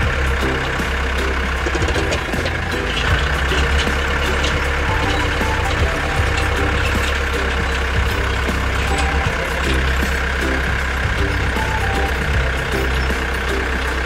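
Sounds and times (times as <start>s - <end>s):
tractor engine running: 0.0s - 14.0s.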